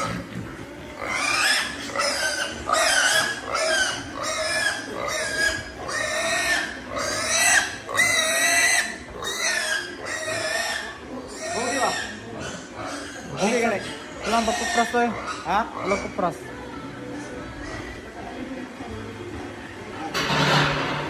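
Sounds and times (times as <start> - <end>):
young pig squealing: 0.0 - 16.4.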